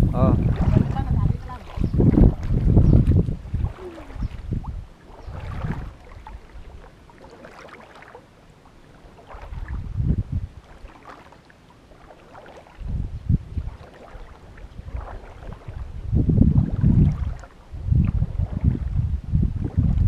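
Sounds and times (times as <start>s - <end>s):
floodwater sloshing and splashing: 0.0s - 20.0s.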